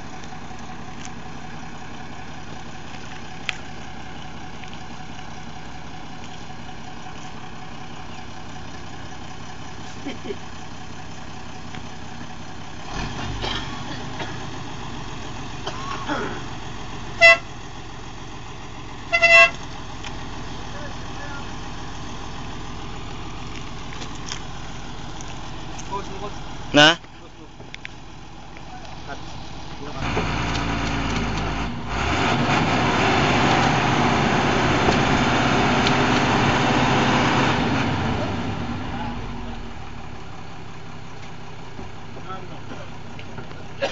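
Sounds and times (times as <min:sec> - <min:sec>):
engine running: 0:00.0 - 0:43.9
vehicle horn toot: 0:17.2 - 0:17.5, 0:19.1 - 0:19.6.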